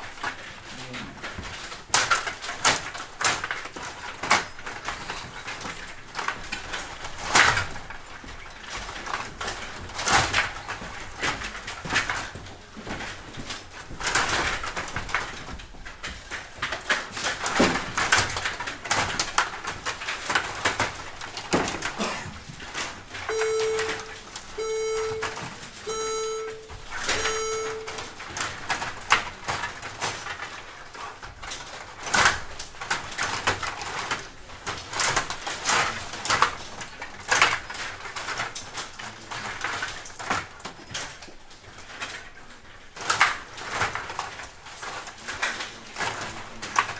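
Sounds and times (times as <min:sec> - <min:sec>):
electronic beeps: 0:23.3 - 0:28.1.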